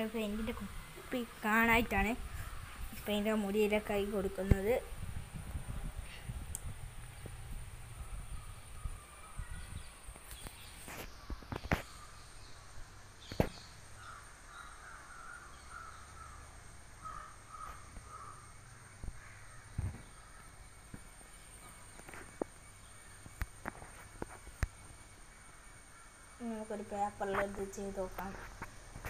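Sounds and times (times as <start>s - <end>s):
distant bird calling: 0.0s - 5.0s, 6.1s - 28.8s.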